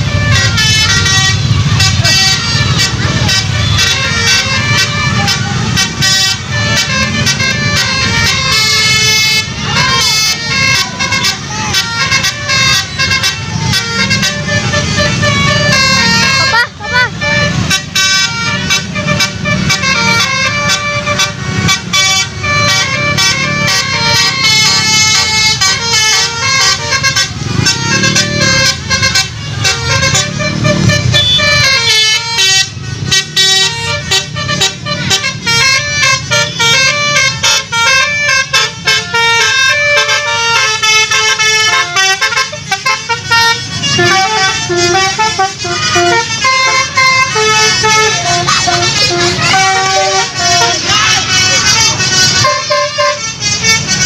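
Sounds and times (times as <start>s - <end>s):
musical air horn melody: 0.0s - 54.0s.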